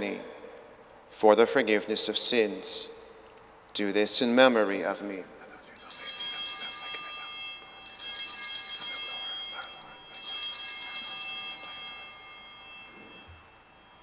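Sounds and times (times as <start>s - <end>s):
altar bells ringing: 5.8s - 14.0s.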